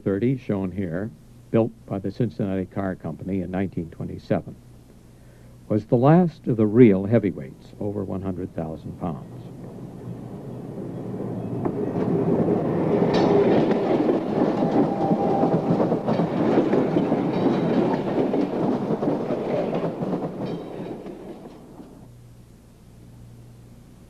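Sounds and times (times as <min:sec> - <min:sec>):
electric railcar passing by: 0:07.8 - 0:22.1.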